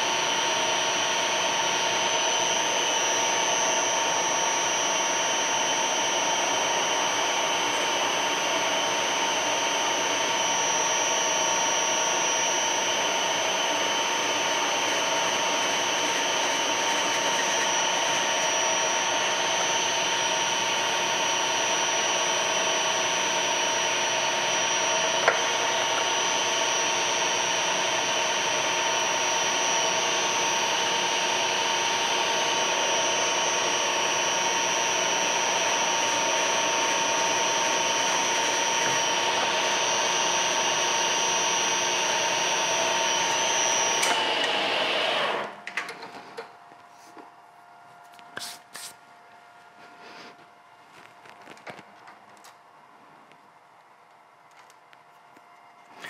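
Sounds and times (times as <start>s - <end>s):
milling machine whining: 0.0s - 45.7s.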